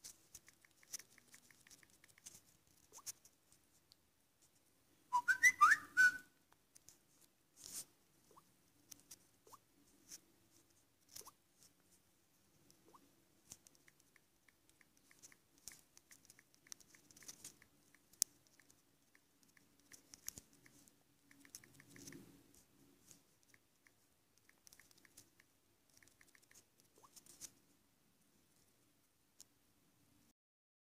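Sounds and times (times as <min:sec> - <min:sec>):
typing on touchscreen keyboard: 0:00.0 - 0:03.1, 0:13.6 - 0:22.3, 0:23.4 - 0:27.4.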